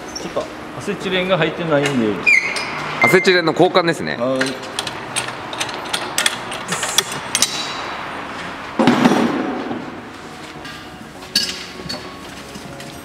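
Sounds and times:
wrench clinking on metal fitting: 0:04.2 - 0:07.8.

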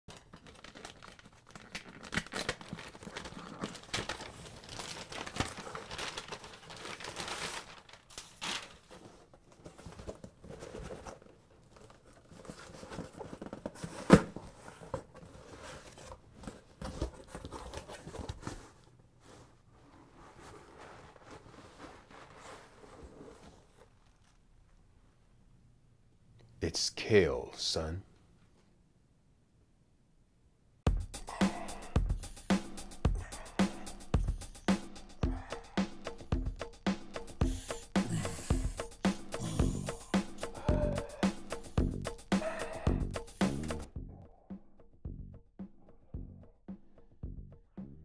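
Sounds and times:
rustling and crinkling: 0:00.1 - 0:25.3.

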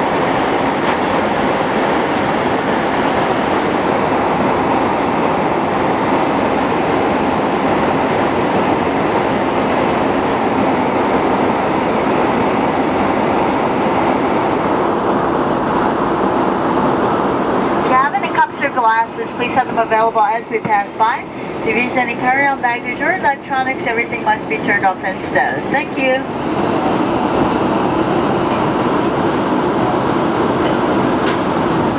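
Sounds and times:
airliner cabin noise in flight: 0:00.0 - 0:31.9.

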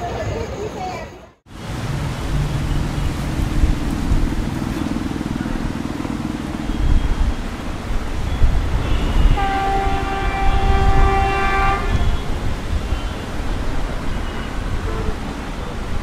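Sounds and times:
train horn blast: 0:08.2 - 0:13.3, 0:14.1 - 0:15.6.

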